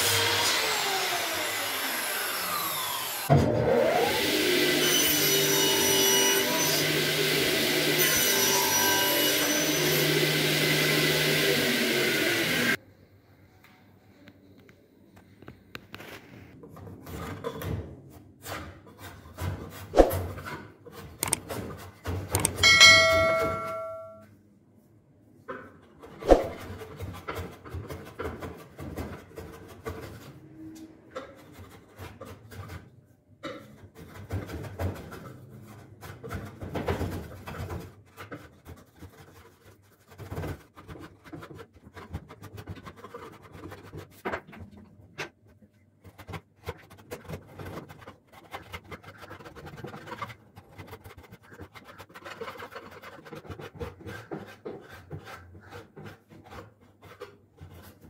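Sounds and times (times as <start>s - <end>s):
file rasping over wood: 37.4s - 44.2s, 46.1s - 58.0s.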